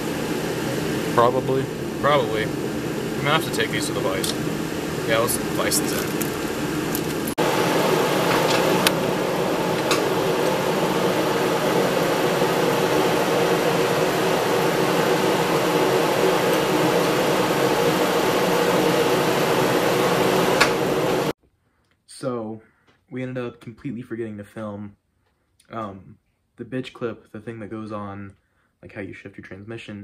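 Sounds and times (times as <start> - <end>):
steady mechanical hum: 0.0 - 21.3.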